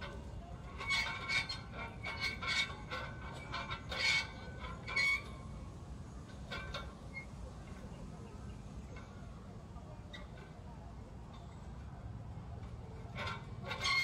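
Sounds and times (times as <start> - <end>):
metal hand wheels squeaking and clicking: 0.0 - 5.6, 6.3 - 7.8, 12.6 - 14.0.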